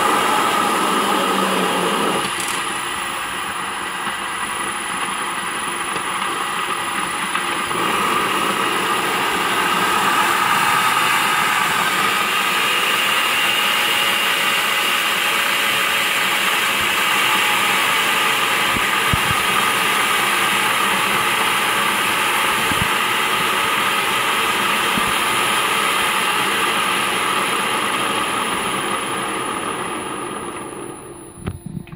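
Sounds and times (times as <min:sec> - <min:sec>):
gearbox whine: 0:00.0 - 0:15.4, 0:28.1 - 0:31.9.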